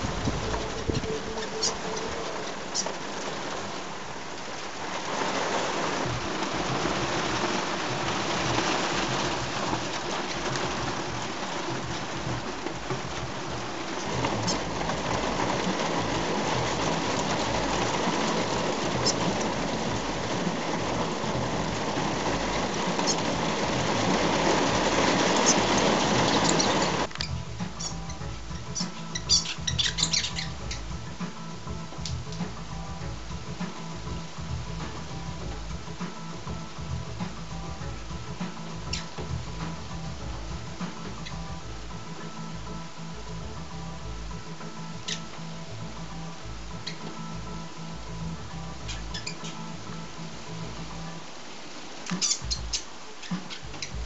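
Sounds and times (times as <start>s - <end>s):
wet snow falling and pattering: 0.0s - 27.9s.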